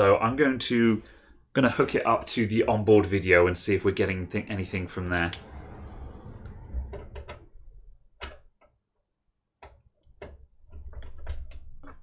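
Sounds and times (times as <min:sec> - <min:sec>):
low handling rumble: 0:03.8 - 0:08.1
cable clicks and knocks: 0:09.6 - 0:12.0.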